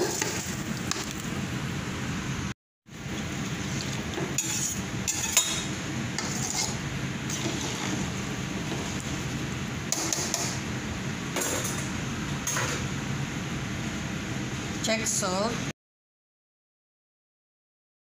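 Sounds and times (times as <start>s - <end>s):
kitchen background noise: 0.0s - 1.4s, 3.0s - 13.0s
metal spoon scraping a pot: 4.3s - 8.1s.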